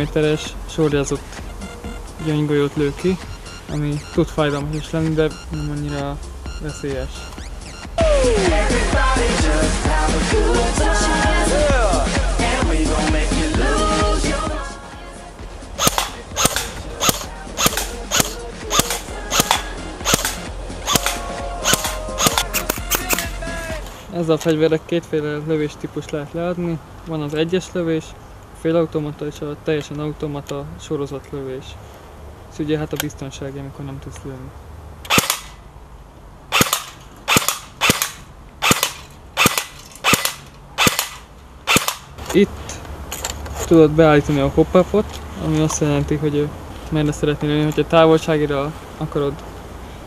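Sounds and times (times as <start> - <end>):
airsoft rifle firing single shots: 15.8 - 22.8, 35.1 - 35.6, 36.5 - 42.1.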